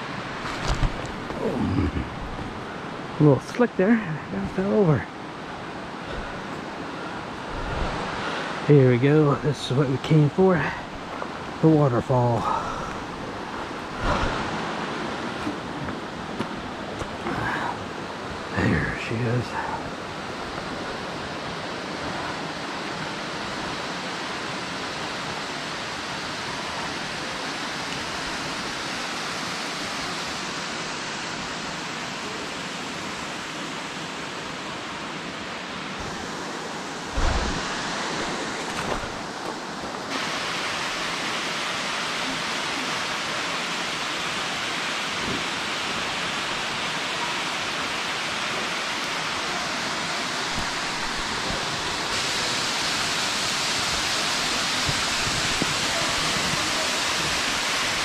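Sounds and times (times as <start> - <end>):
waterfall rushing: 0.0 - 58.0
low thump: 37.2 - 39.2.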